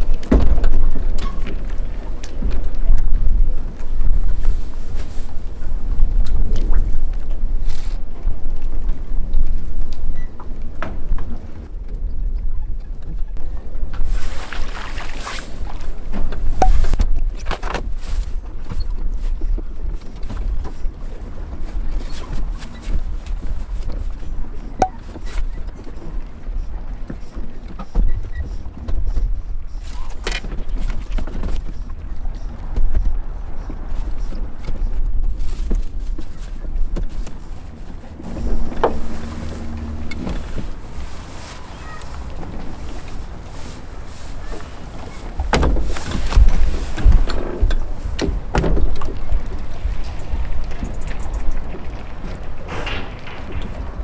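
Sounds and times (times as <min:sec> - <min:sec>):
wind rumbling on microphone: 0:00.0 - 0:54.0
steady low hum: 0:37.3 - 0:44.2
water rushing: 0:37.4 - 0:47.0.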